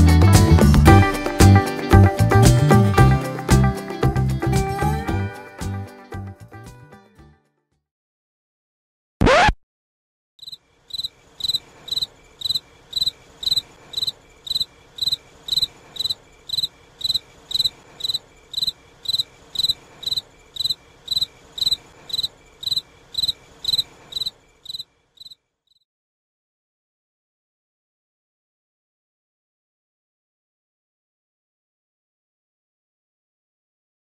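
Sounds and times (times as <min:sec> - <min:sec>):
cricket chirping: 0:10.4 - 0:25.8.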